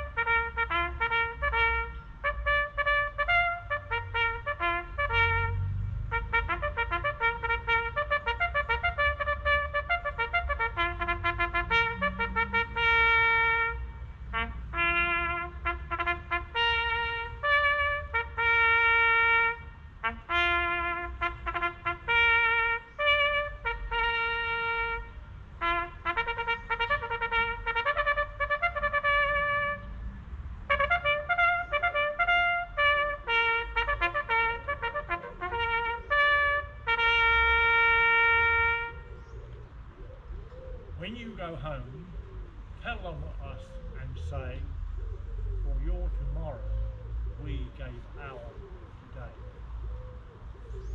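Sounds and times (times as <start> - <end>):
solo bugle call: 0.0 - 30.0, 30.7 - 39.2.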